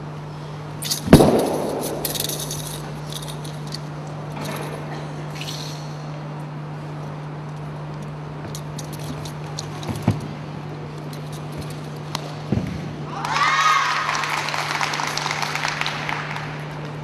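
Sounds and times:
low hum: 0:00.0 - 0:13.2.

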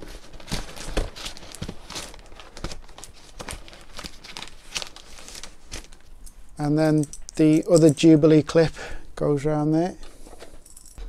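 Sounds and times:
duct rustling and crinkling: 0:00.0 - 0:06.2.

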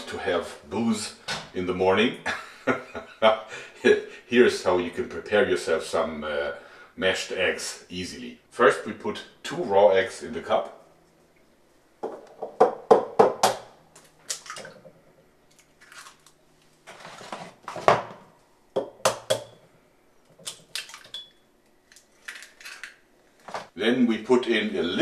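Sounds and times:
eggshells cracking: 0:15.5 - 0:16.4, 0:21.9 - 0:23.0.

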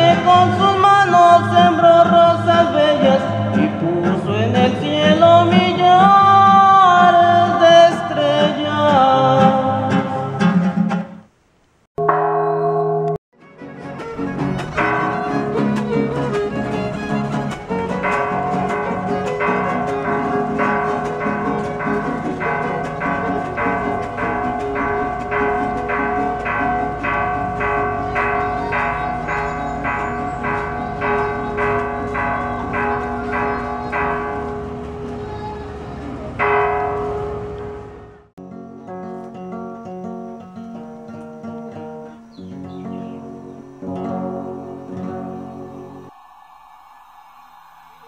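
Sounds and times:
church bells ringing: 0:12.0 - 0:13.2, 0:14.1 - 0:38.3.

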